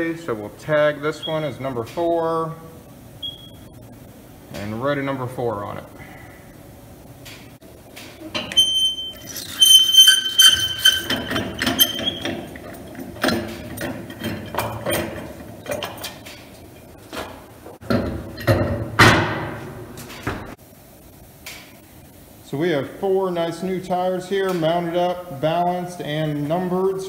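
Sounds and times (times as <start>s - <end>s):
metal clinks and knocks: 8.3s - 16.9s.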